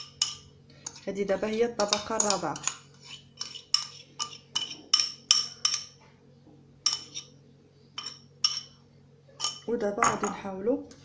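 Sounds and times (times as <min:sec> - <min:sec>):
metal spoon clinking on ceramic bowl: 0:00.0 - 0:01.0, 0:01.8 - 0:02.8, 0:03.4 - 0:06.0, 0:06.8 - 0:07.3, 0:08.0 - 0:08.8, 0:09.4 - 0:10.3.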